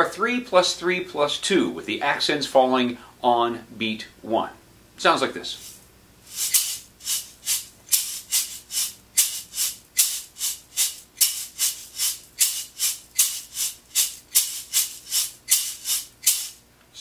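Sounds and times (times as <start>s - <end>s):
tube shaker rattling: 5.6s - 16.6s.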